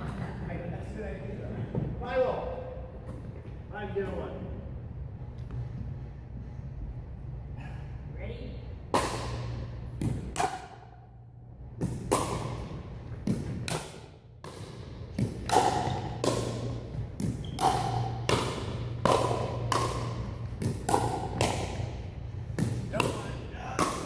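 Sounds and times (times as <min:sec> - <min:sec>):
paddles hitting plastic ball: 0:08.9 - 0:10.7, 0:11.8 - 0:24.0.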